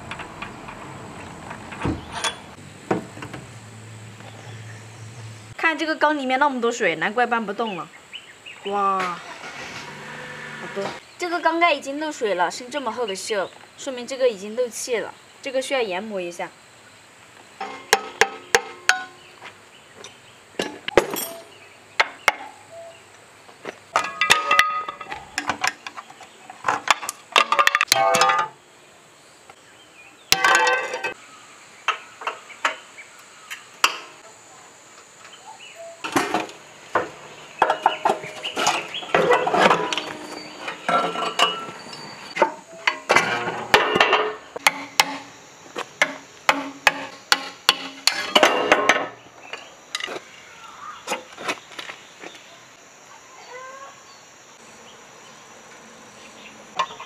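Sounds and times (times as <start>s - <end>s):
metal tools clanking on engine block: 1.5s - 2.6s, 17.6s - 19.2s, 20.6s - 21.6s, 23.9s - 28.6s, 30.3s - 31.2s, 36.0s - 45.2s, 46.0s - 50.1s.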